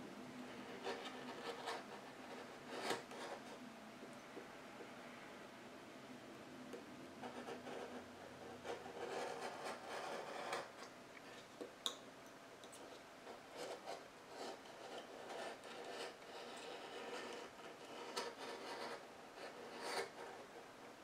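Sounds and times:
craft knife scraping wood: 2.7s - 3.4s.

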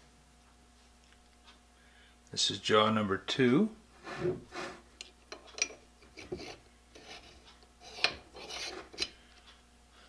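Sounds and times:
metal-on-metal scraping: 4.0s - 9.2s.

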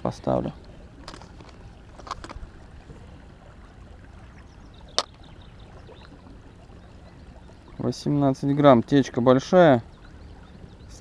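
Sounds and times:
river water rumbling: 0.0s - 11.0s
fishing tackle clicks: 0.6s - 2.4s.

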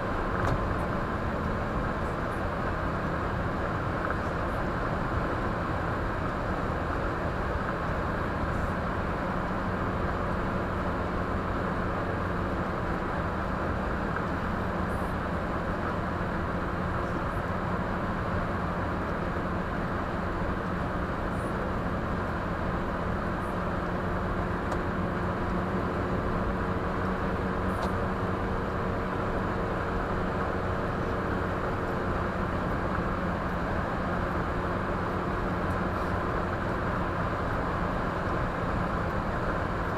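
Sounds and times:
low engine hum: 0.0s - 39.9s.

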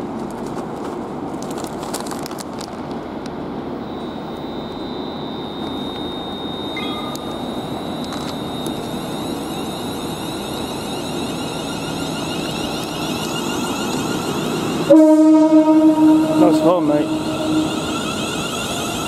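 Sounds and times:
brief tone: 3.8s - 19.0s
thin high whine: 3.8s - 19.0s
rising traction whines: 3.9s - 19.0s
train equipment din: 5.6s - 19.0s.

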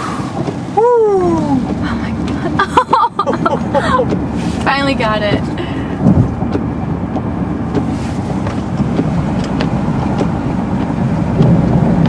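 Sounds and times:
car road and engine rumble: 0.0s - 12.0s.

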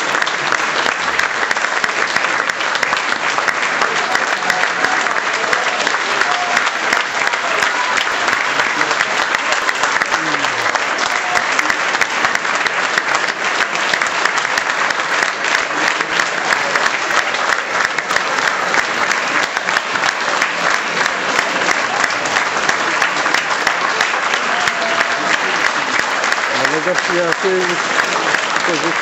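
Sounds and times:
audience applauding: 0.0s - 29.0s.

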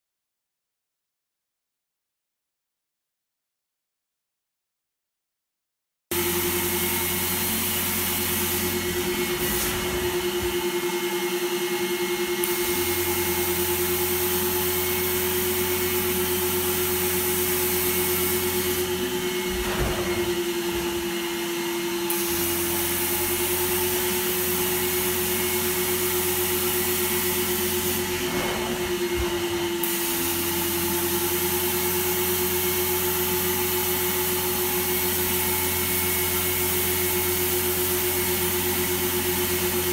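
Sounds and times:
vacuum motor whining: 6.2s - 39.9s
hiss of air and water: 7.8s - 10.9s.

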